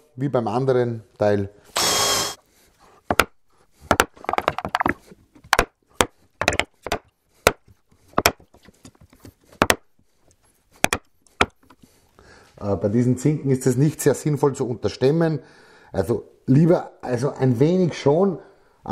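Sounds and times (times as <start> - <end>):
mallet striking chisel: 10.8 - 11.6.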